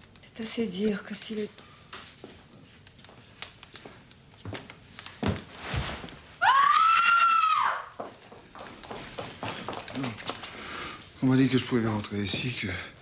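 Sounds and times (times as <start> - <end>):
woman screaming: 6.4 - 8.0.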